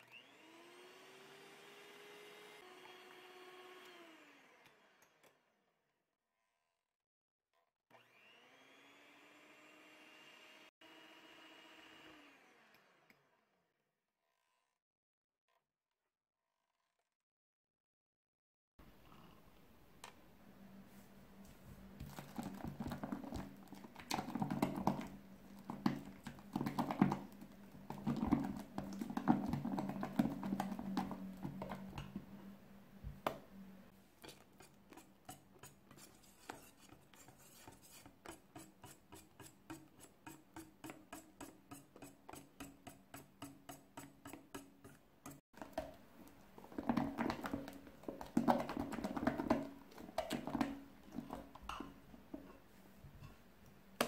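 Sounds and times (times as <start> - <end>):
whisk mixing batter in glass bowl: 22.0 - 32.2, 34.2 - 46.0, 46.6 - 52.0
spatula scraping glass jug: 34.2 - 45.4.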